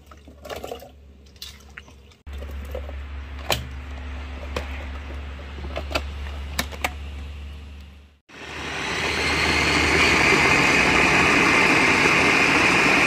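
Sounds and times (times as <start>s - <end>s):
blender motor running: 8.3s - 13.0s.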